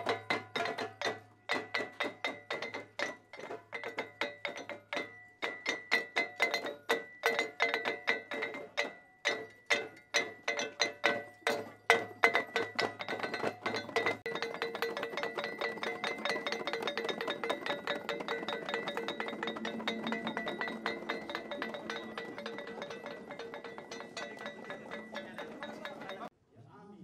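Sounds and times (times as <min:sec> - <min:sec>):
fast percussion strikes: 0:00.0 - 0:26.3
ringing pitched tones: 0:08.6 - 0:26.3.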